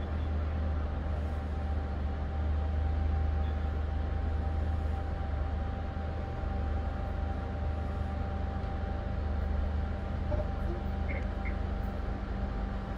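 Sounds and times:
faint constant whine: 0:00.0 - 0:12.9
ship engines droning: 0:00.0 - 0:12.9.

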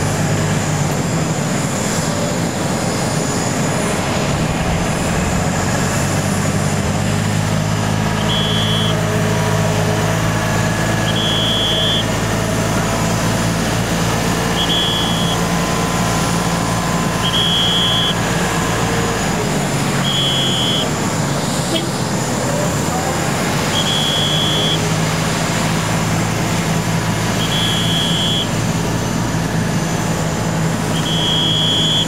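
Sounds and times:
low engine hum: 0:00.0 - 0:32.0
high warning beeps: 0:08.2 - 0:09.0, 0:11.0 - 0:12.1, 0:14.5 - 0:15.5, 0:17.2 - 0:18.2, 0:20.0 - 0:21.0, 0:23.7 - 0:24.9, 0:27.4 - 0:28.6, 0:30.9 - 0:32.0.

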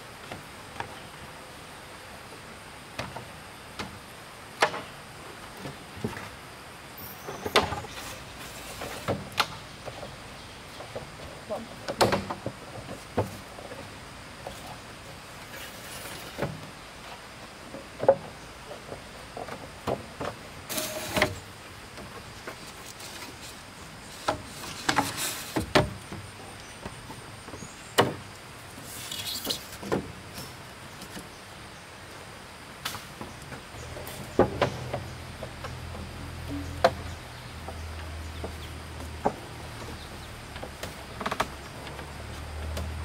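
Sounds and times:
scraping or rustling: 0:07.0 - 0:10.2, 0:14.5 - 0:17.2, 0:18.2 - 0:26.0, 0:28.8 - 0:31.2.

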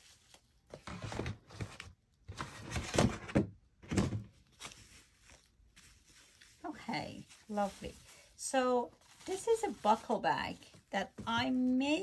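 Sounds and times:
cloth bag rustling: 0:04.4 - 0:12.0.

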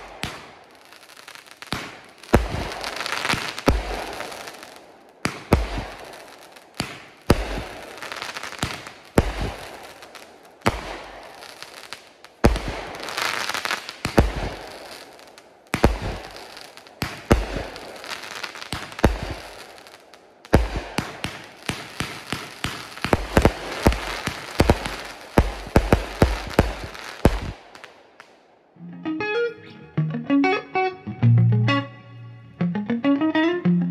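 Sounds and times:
fireworks bangs: 0:00.0 - 0:28.4
fireworks crackle: 0:00.0 - 0:28.7.

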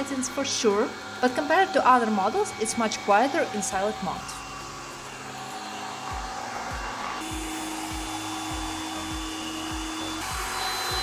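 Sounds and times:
robot vacuum fan hiss and whine: 0:00.0 - 0:11.0
background music beat: 0:04.5 - 0:11.0.

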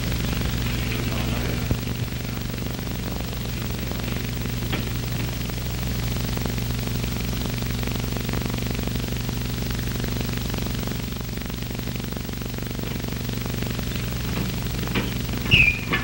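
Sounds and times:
faint crackle: 0:00.0 - 0:16.0
film soundtrack hiss: 0:00.0 - 0:16.0
low even hum: 0:00.0 - 0:16.0.

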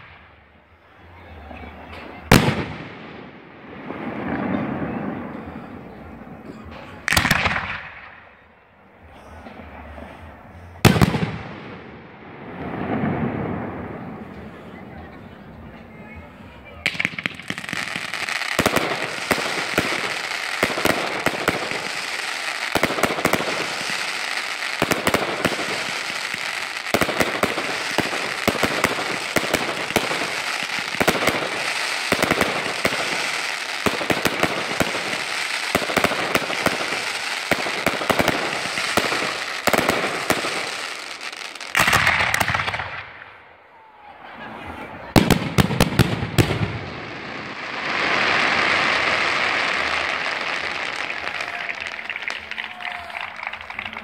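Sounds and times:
firework cracks and bangs: 0:00.0 - 0:00.4, 0:02.3 - 0:05.3, 0:07.0 - 0:08.2, 0:10.8 - 0:14.5, 0:16.8 - 0:43.4, 0:45.1 - 0:54.0
firework fountain hissing: 0:16.4 - 0:42.8, 0:45.0 - 0:54.0.

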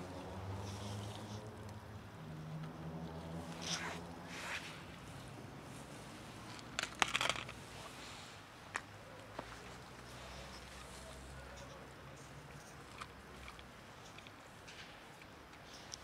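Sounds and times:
rustling: 0:03.2 - 0:16.0
cats crunching dry kibble: 0:06.3 - 0:08.0, 0:10.6 - 0:16.0.

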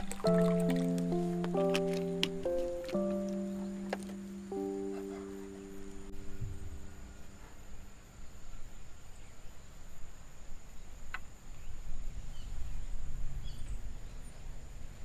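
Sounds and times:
low uneven rumble: 0:00.0 - 0:08.6.

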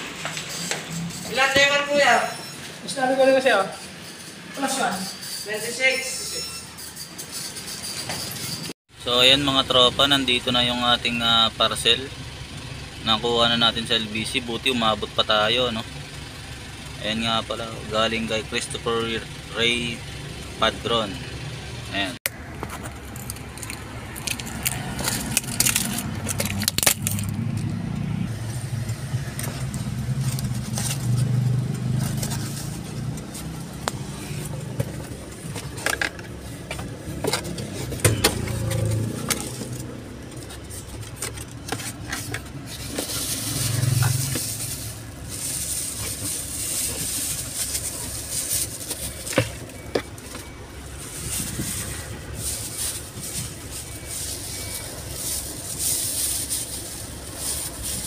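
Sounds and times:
plastic bag crinkling: 0:42.8 - 0:49.6, 0:50.9 - 0:58.0.

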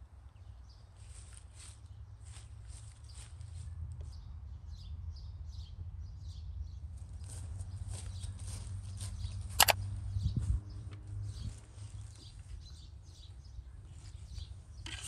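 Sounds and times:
footsteps rustling through leaves: 0:01.0 - 0:03.8, 0:07.0 - 0:09.5.

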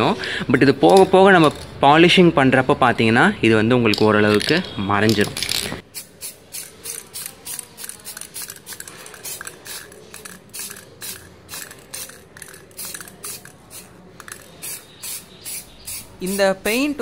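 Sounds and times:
aerosol spray can hissing: 0:05.9 - 0:16.4.

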